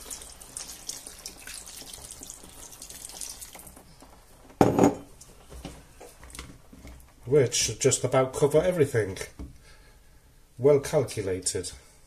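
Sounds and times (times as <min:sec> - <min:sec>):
water trickling into a pan: 0:00.0 - 0:04.2.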